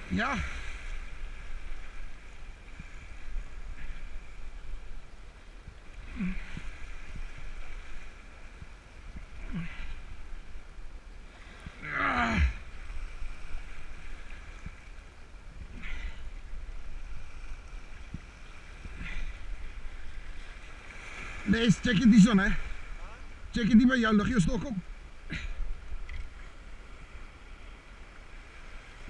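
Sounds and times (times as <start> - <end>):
sea water washing: 0.0 - 29.0
man grunting: 11.8 - 12.6.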